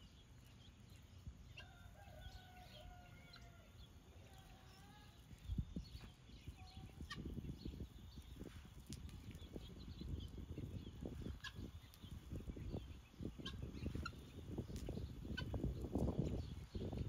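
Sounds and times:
guinea fowl chirping: 6.0s - 7.8s, 11.0s - 16.4s
low irregular rustle: 8.1s - 12.6s.

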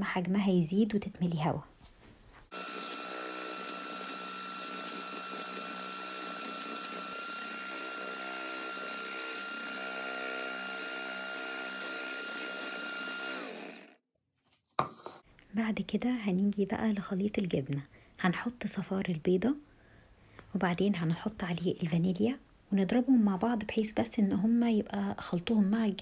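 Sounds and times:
electric hand mixer whining: 2.5s - 14.0s.

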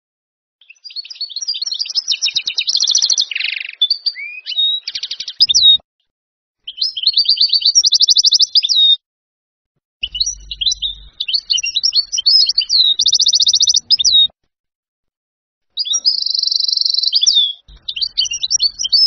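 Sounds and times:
goldfinch twittering song: 0.6s - 5.8s, 6.7s - 9.0s, 10.0s - 14.3s, 15.8s - 19.0s.

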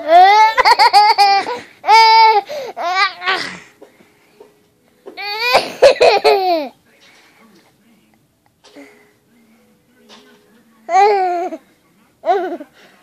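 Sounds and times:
toddler girl laughing: 0.1s - 3.2s, 5.3s - 6.7s.

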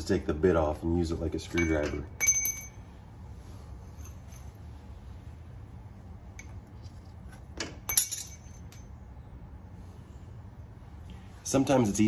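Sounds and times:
low steady hum: 0.0s - 12.0s
metal tools clinking on bolts: 1.4s - 2.9s, 6.4s - 9.0s.

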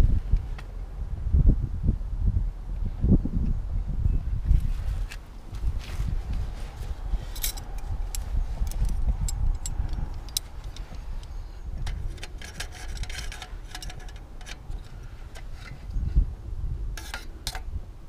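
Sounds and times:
metal clicks and jangling: 7.3s - 7.8s.

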